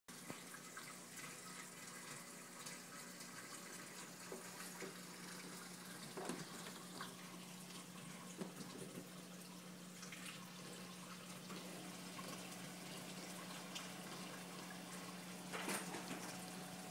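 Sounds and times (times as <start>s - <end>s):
water trickling in aquarium: 0.1s - 16.9s.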